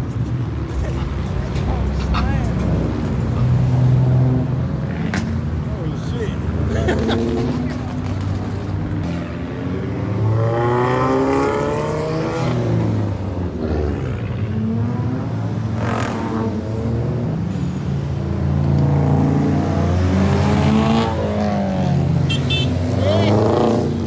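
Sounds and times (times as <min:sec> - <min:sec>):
cars accelerating past: 0:00.7 - 0:24.0.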